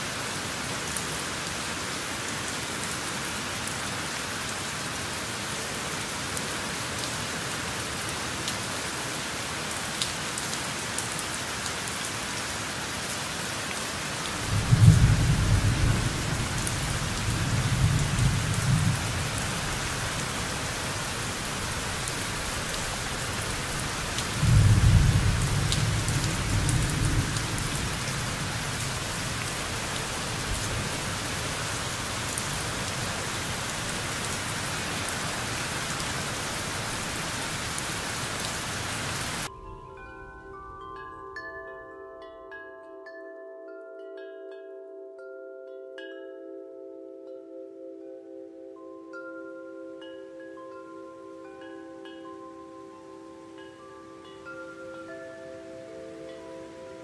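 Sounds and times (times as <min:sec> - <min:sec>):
steady rain: 0:00.0 - 0:41.0, 0:50.6 - 0:57.0
low rumbles of thunder: 0:14.4 - 0:19.9, 0:24.4 - 0:30.8.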